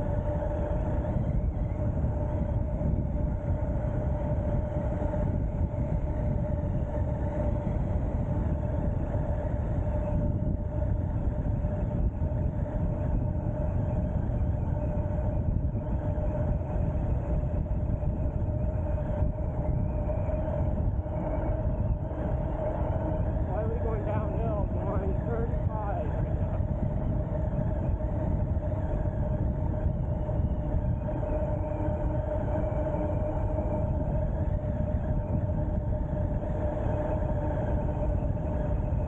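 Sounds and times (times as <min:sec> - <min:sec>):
electric motor whine: 0:00.0 - 0:39.0
wind rush on microphone: 0:00.0 - 0:39.0.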